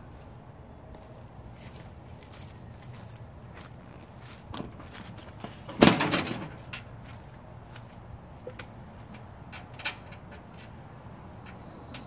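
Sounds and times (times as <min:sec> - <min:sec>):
loud clunk of mower wheel: 0:04.5 - 0:06.9.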